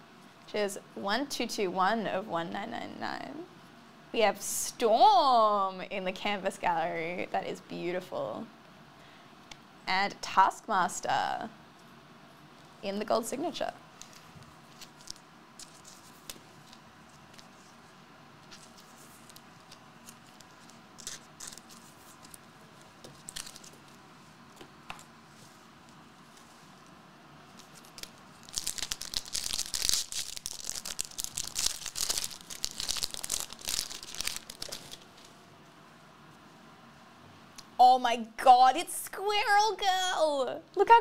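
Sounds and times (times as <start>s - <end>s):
foil wrapper tearing and crinkling: 18.5s - 22.4s, 23.2s - 23.7s, 27.6s - 35.1s.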